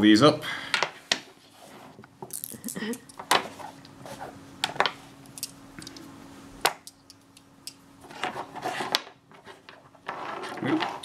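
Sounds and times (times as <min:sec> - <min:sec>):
magnetic pieces clicking together: 0:04.6 - 0:06.1, 0:06.7 - 0:07.8.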